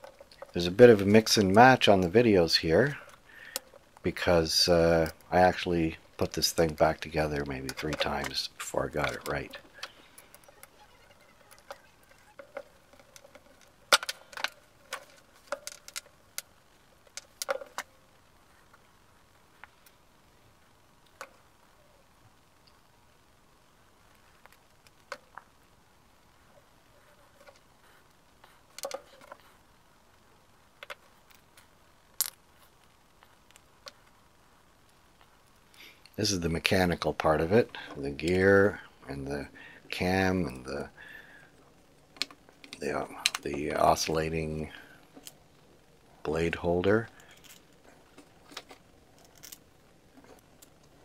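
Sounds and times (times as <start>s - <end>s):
screwdriver and metal parts clicking: 0.0s - 17.9s.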